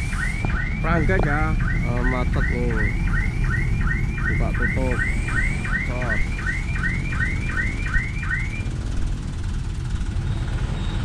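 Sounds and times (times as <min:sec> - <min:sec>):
electronic alarm chirping: 0:00.0 - 0:08.7
idling trucks and traffic rumble: 0:00.0 - 0:11.0.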